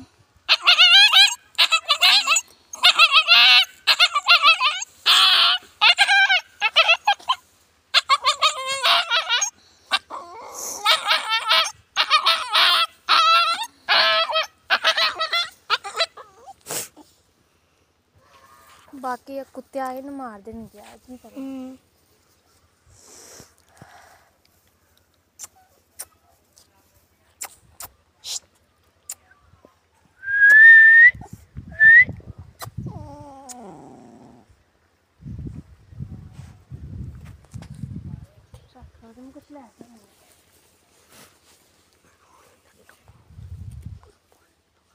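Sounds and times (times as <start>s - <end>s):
puppy crying and yelping: 0.5s - 17.2s, 32.9s - 34.4s
rustling in grass: 18.2s - 28.7s, 34.9s - 44.9s.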